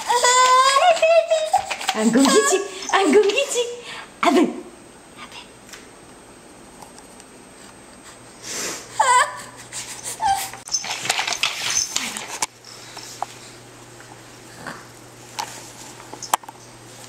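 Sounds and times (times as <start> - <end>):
baby crying: 0.0 - 3.0.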